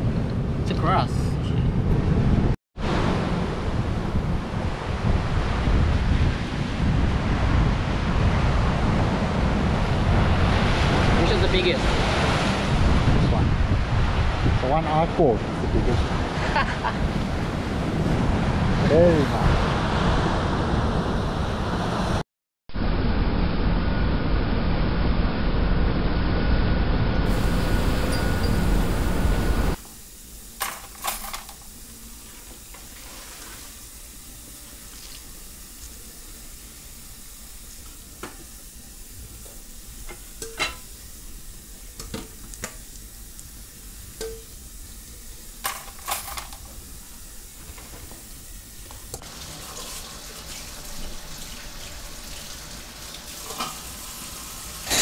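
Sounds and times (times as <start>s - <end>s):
loud low rumble: 22.7s - 29.8s
steady hiss: 27.3s - 55.0s
dishes and utensils clinking: 40.4s - 40.9s, 53.4s - 53.8s.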